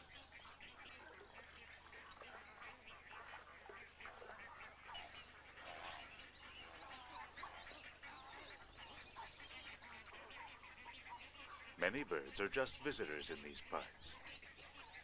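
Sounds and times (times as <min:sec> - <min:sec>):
waterbirds chattering: 0:00.0 - 0:15.0.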